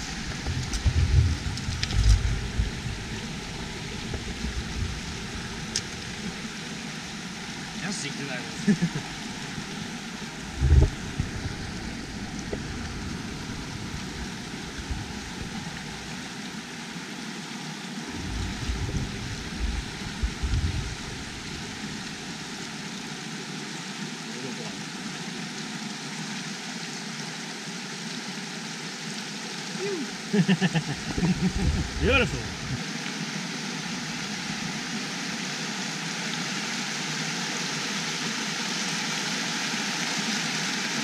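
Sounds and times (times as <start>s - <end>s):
creek rushing over rapids: 0.0s - 41.0s
low thumps: 10.5s - 11.6s, 18.2s - 21.3s.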